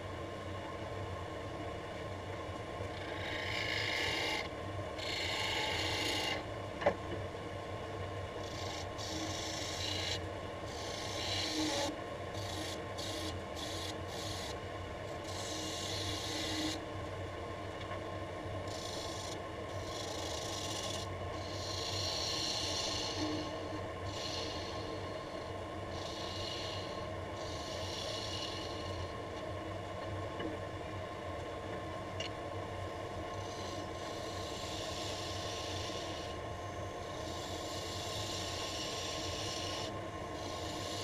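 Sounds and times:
wood lathe humming: 2.9 - 6.4, 8.4 - 14.6, 15.3 - 16.8, 18.7 - 29.1, 33.3 - 36.4, 37.0 - 41.0
turning tool scraping wood: 10.8 - 14.5.

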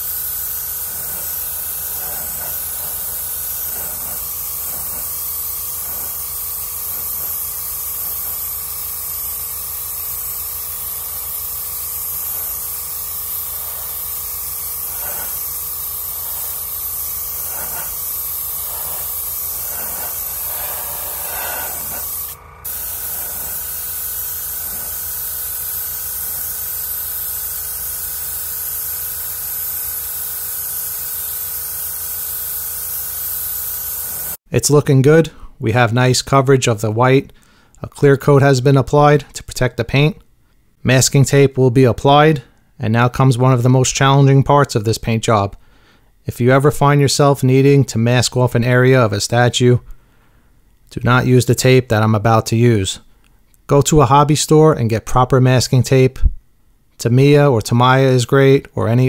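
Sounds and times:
steady hum: 0.0 - 26.7
airbrush spraying air hiss: 0.0 - 34.4.

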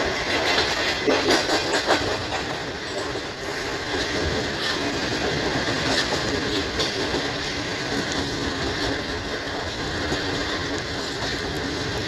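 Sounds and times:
train wheels rumbling on track: 0.0 - 12.0
clicks over rail joints: 0.2 - 3.3.

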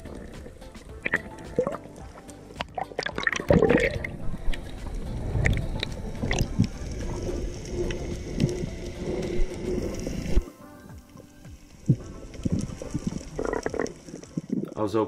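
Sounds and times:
low rumble of moving water: 2.9 - 10.4, 11.7 - 14.8.

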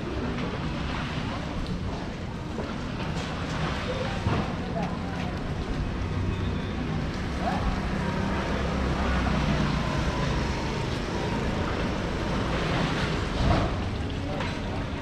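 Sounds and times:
street noise: 0.0 - 15.0.

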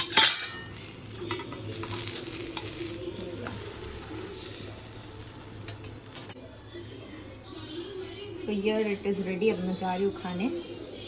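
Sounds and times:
bread frying in butter: 0.0 - 6.4.

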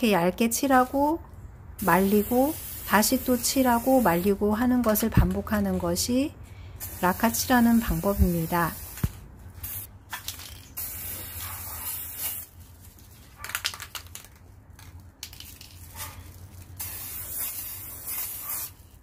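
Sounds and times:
aerosol spray can hissing: 1.8 - 4.3, 6.8 - 9.9, 10.8 - 12.5, 16.8 - 18.8.

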